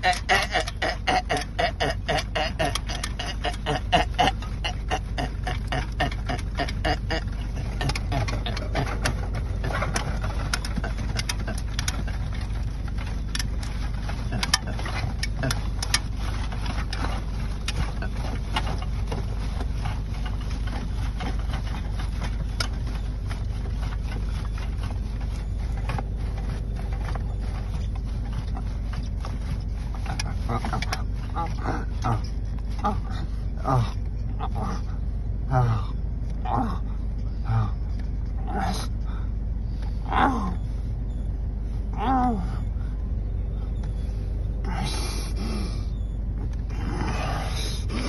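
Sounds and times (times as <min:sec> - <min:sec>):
man straining vocal sounds: 0:00.0 - 0:09.1
car cabin rumble: 0:00.0 - 0:48.0.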